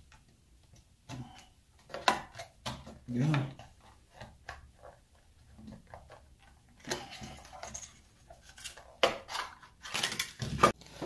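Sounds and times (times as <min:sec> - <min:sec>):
plastic cards scraping and clicking: 0:00.7 - 0:11.0.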